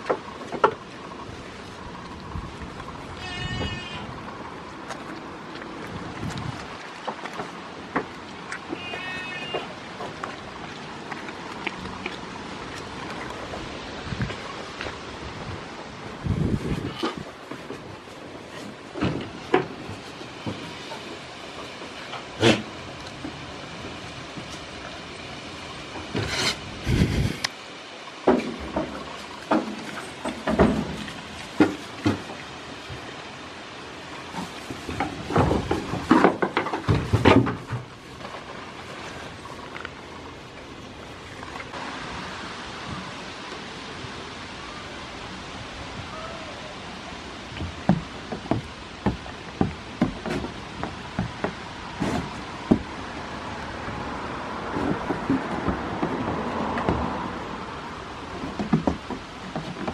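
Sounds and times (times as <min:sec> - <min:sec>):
rustling and thumping: 0:28.3 - 0:33.1, 0:34.3 - 0:38.6, 0:47.6 - 0:53.0
goats knocking against wooden boards: 0:34.9 - 0:37.9, 0:47.6 - 0:53.0, 0:54.7 - 0:57.2, 0:58.3 - 0:59.9.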